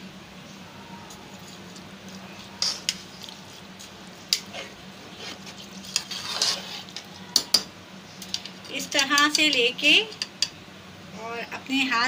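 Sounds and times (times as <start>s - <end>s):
faint steady hum: 0.0s - 12.0s
wet sloshing of stirring: 1.4s - 7.4s
spoon scraping and knocking pan: 4.3s - 7.7s.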